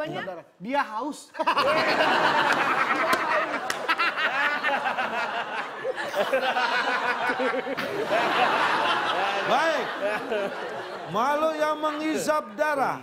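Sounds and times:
people laughing and shouting: 1.4s - 12.4s
hand claps: 2.4s - 4.2s.

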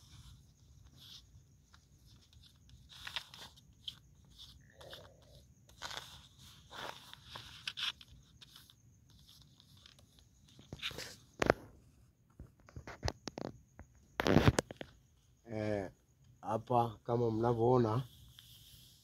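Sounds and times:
paper rustling: 0.0s - 11.7s.

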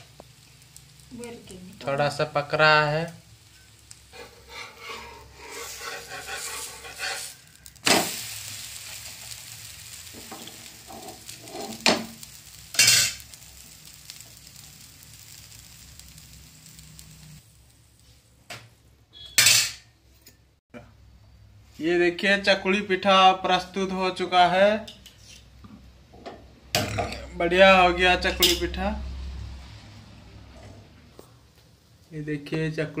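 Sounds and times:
pancake sizzling in a frying pan: 0.0s - 18.5s
spatula scraping a pan: 3.5s - 7.8s, 10.2s - 13.3s.

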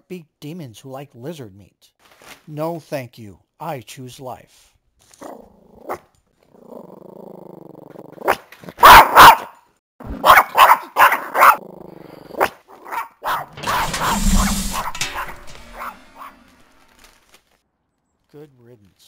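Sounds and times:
dog growling low: 6.5s - 8.1s
dog barking loudly: 8.8s - 9.6s, 10.2s - 11.6s, 12.8s - 13.5s
rush of noise: 13.5s - 16.9s.

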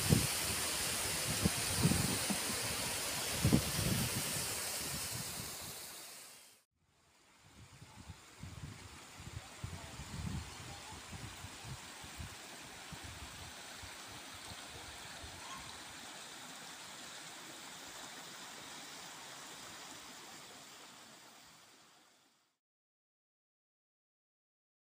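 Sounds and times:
stream flowing over rocks: 0.0s - 6.4s, 10.7s - 22.1s
wind bumps on microphone: 1.2s - 5.6s.

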